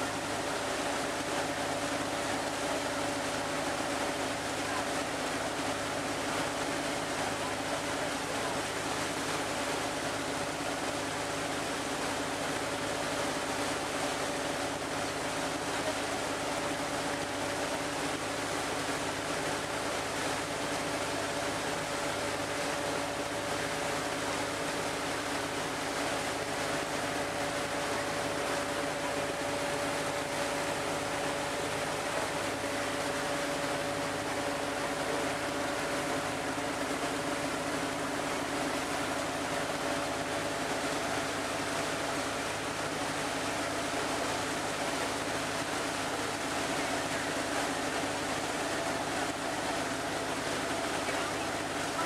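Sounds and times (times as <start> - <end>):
boat engine drone: 0.0 - 52.0
water rushing from hull: 0.0 - 52.0.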